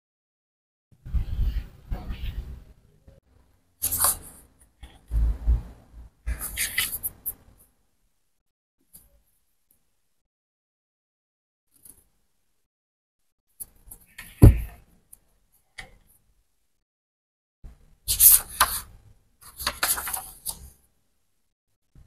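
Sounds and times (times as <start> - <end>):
book thumping on table: 14.4 - 14.7.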